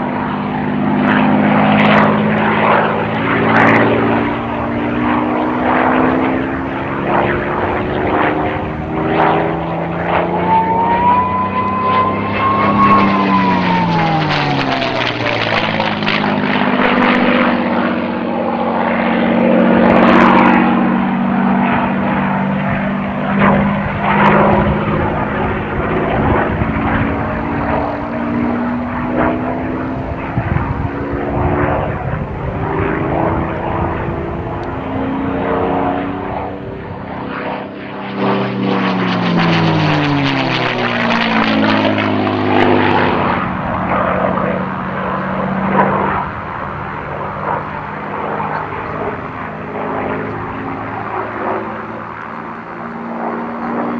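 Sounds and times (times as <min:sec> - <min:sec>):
propeller plane engine flying past: 0:00.0 - 0:53.9.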